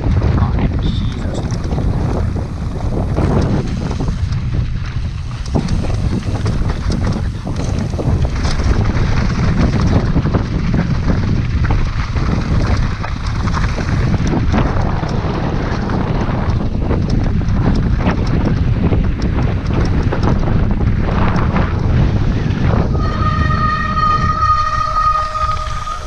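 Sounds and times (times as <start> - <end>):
bike rattling over rough ground: 0.0 - 26.0
wind on microphone: 0.0 - 26.0.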